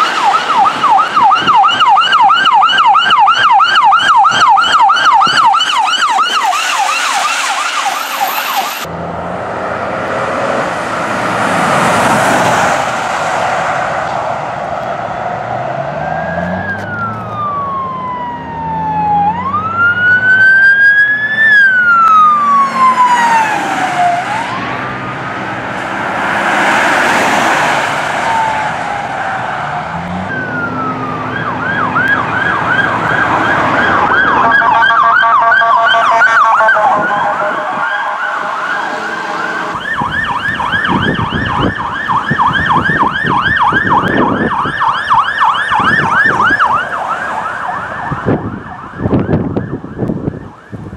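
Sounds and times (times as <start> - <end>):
police siren wailing and yelping: 0.0 - 8.9, 14.9 - 50.9
pulsing siren tone: 0.0 - 9.0, 15.3 - 25.4, 27.9 - 50.9.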